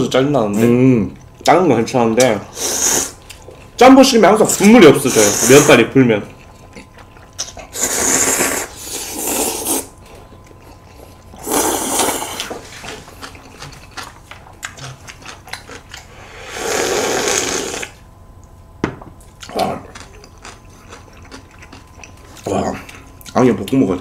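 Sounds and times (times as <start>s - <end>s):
wet chewing: 2.2s - 4.8s, 5.6s - 16.2s, 19.2s - 24.0s
noodles slurped loudly: 7.7s - 9.9s, 16.5s - 18.0s.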